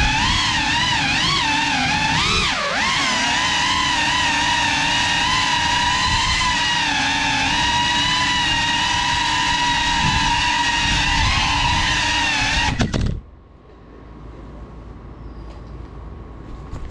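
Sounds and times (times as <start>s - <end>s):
drone propellers whining: 0.0s - 13.2s.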